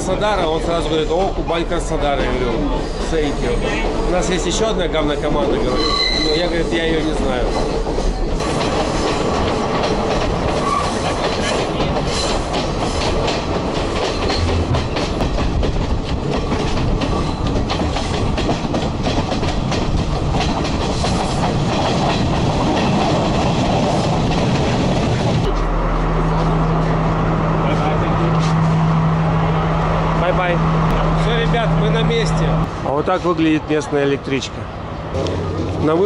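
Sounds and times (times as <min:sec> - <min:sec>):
train rumbling along track: 0:00.0 - 0:36.0
wheels clacking over rail joints: 0:07.2 - 0:25.5.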